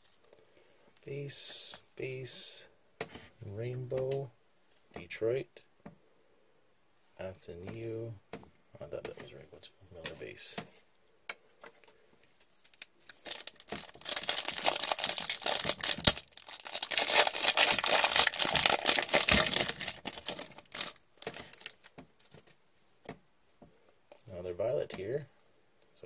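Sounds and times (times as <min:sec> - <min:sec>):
foil wrapper crinkling and tearing: 0:12.6 - 0:21.9.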